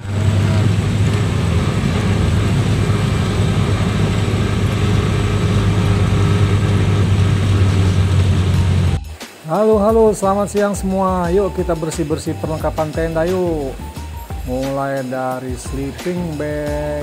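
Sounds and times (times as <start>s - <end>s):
car engine drone: 0.0s - 9.2s.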